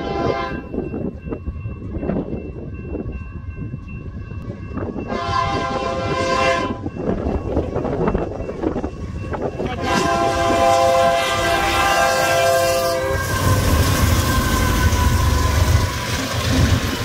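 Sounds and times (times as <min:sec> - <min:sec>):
train air horn blasts: 0:00.0 - 0:00.7, 0:05.1 - 0:06.9, 0:09.6 - 0:16.6
wind rumble on microphone: 0:00.0 - 0:17.0.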